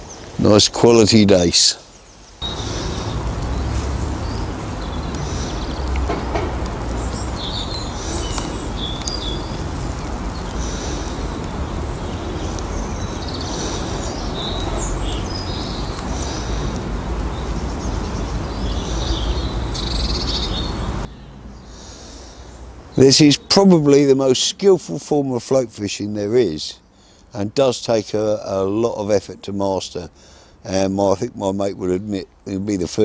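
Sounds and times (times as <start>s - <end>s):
small birds chirping: 0.0s - 24.2s
steady low rumble: 2.4s - 20.2s.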